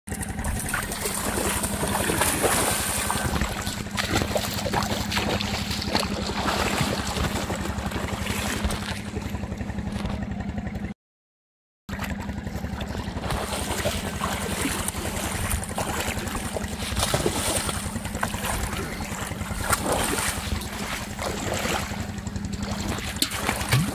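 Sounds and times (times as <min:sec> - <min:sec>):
steady low hum: 0:00.1 - 0:10.9, 0:11.9 - 0:23.9
child splashing in water: 0:00.3 - 0:09.4, 0:11.9 - 0:23.9.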